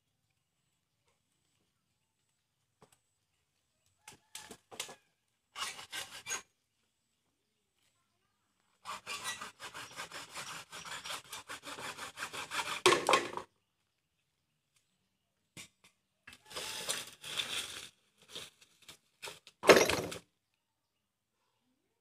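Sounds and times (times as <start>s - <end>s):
handsaw sawing bamboo: 5.6s - 6.5s, 8.8s - 13.4s, 16.5s - 17.7s.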